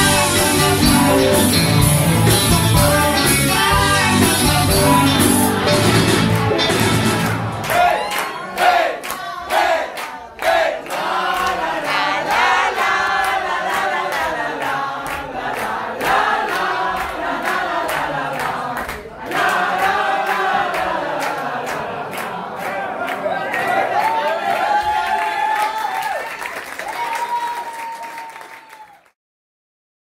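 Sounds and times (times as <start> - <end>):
crowd cheering and chanting: 0.0 - 29.1
hand claps: 6.2 - 23.8.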